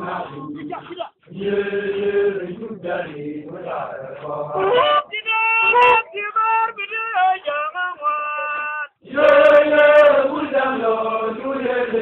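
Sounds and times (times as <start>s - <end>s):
men chanting in song: 0.0s - 4.7s.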